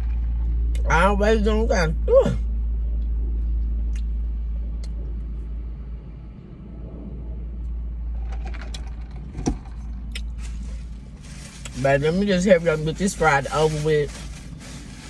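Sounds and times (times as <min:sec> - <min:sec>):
car idling: 0:00.0 - 0:15.0
faint rustles: 0:07.6 - 0:15.0.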